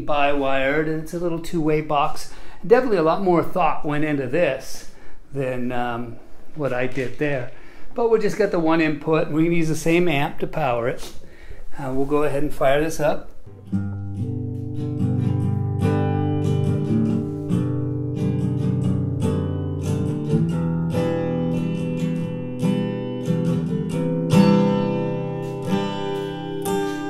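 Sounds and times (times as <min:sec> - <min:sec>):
acoustic guitar through speaker: 0:00.0 - 0:27.0.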